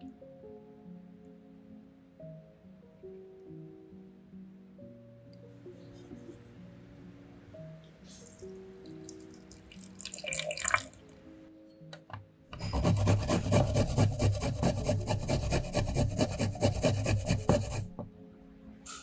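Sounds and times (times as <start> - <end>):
soft background music: 0.0 - 19.0
garlic scraping on grater: 12.6 - 18.0.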